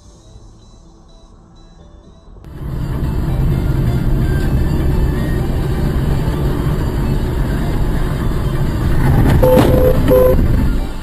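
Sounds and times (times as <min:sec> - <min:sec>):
car cabin road and engine rumble: 0:02.5 - 0:11.0.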